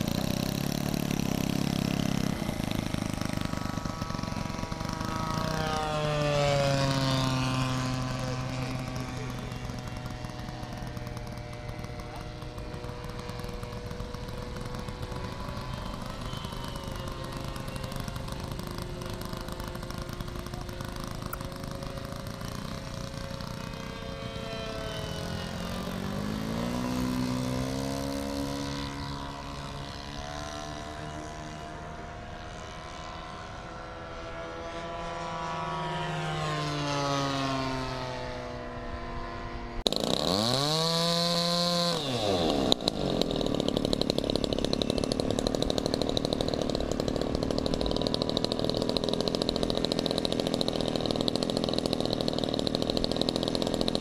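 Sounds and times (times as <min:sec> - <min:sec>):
model airplane flying overhead: 0:00.0 - 0:54.0
model plane engine revving nearby: 0:00.0 - 0:54.0.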